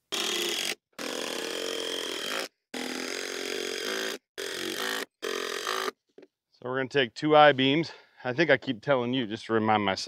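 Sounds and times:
power driver driving screws: 0.1s - 6.0s.

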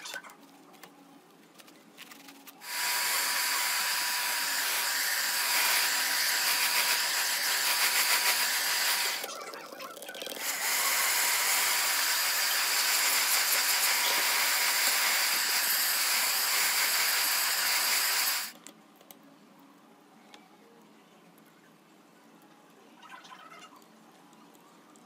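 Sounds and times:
electric air blower whining: 2.6s - 9.3s, 10.4s - 18.5s.

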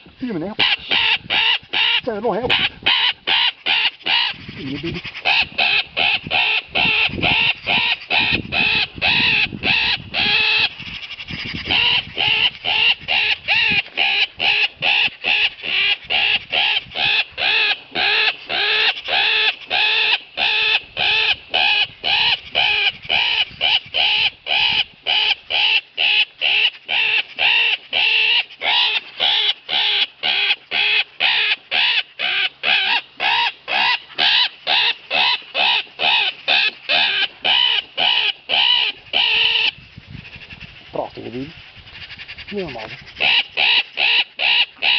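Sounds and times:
game call harsh rasping squawks: 0.6s - 16.8s, 42.5s - 44.9s.

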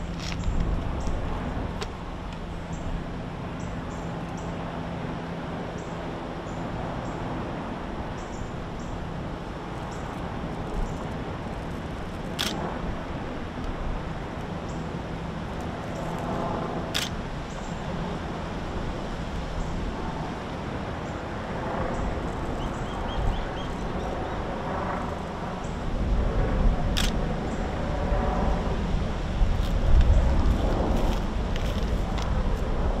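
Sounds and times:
sharp cracks: 12.2s - 12.6s.

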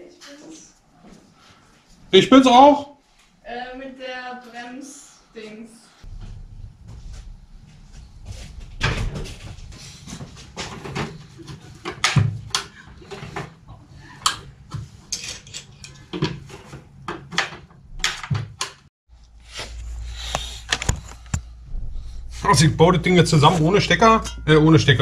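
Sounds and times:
tools clattering on workbench: 15.0s - 17.6s.

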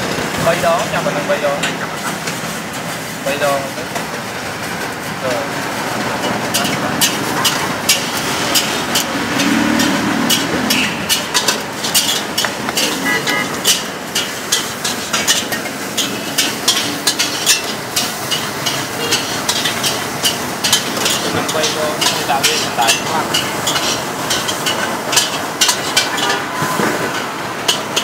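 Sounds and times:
metal utensils clinking on pot: 6.2s - 28.0s.

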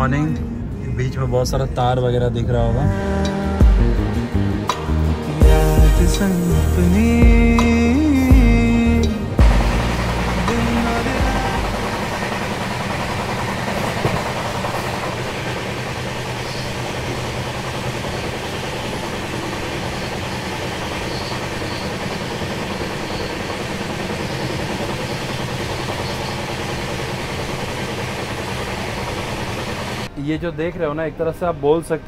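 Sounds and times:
train wheels rumbling on rails: 9.0s - 30.1s.

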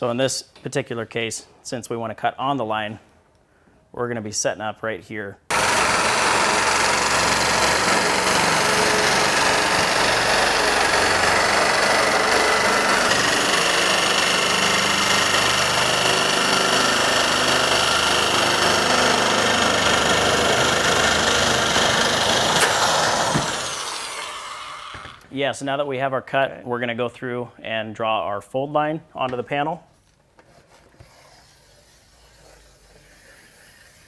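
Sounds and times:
electric shears cutting metal: 5.5s - 25.2s.

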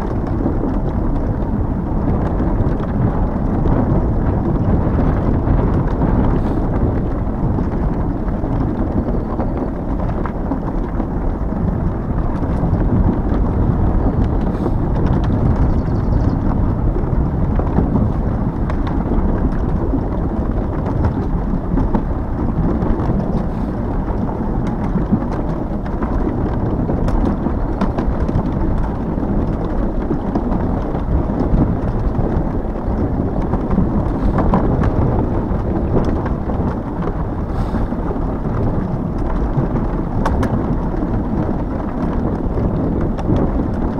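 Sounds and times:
tyre and road noise: 0.0s - 43.9s
wind buffeting microphone: 0.0s - 43.9s.

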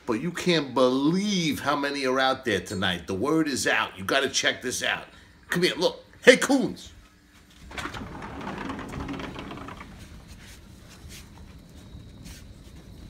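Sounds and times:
sliding glass door rolling open: 7.5s - 10.8s.

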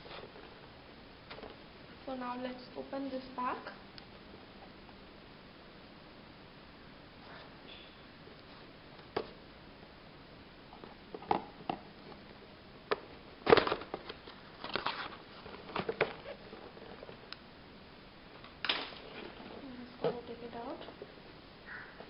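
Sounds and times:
cardboard and plastic crinkling: 13.4s - 17.3s.

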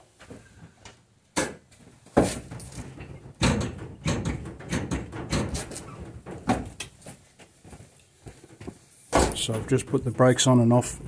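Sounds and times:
loud thud: 9.1s - 9.7s.

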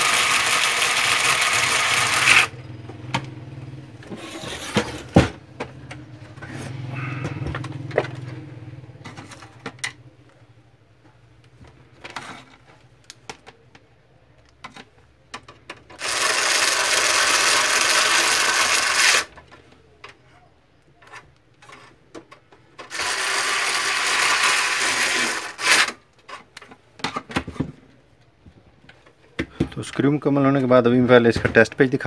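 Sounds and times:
electric screwdriver running: 0.0s - 2.5s, 16.0s - 19.3s, 22.9s - 25.9s.

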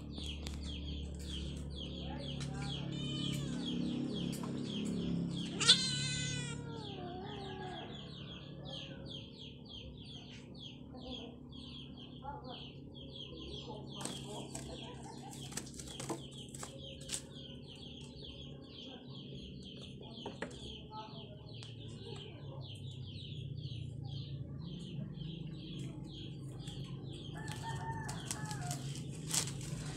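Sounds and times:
young animal peeping: 0.0s - 29.9s
cat meowing: 2.8s - 3.7s, 5.5s - 7.0s.

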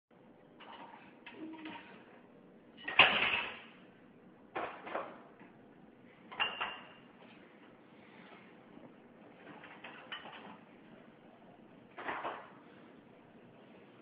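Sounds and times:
dinner plates clattering: 0.6s - 2.2s, 2.8s - 3.8s, 4.5s - 5.4s, 6.3s - 7.1s, 9.3s - 10.7s, 11.9s - 12.8s.

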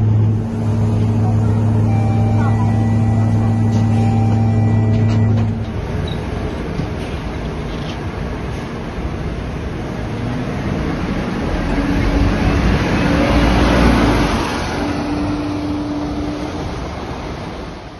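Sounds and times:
steady hum: 0.0s - 6.7s
bus diesel engine pulling away: 0.0s - 17.9s.

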